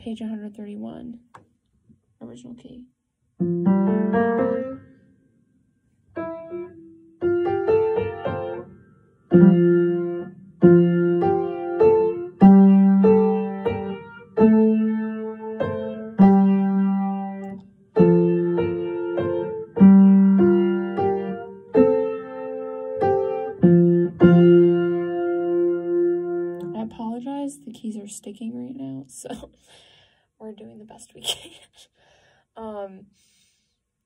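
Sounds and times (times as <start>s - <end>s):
upright piano block chords: 6.2s - 27.8s.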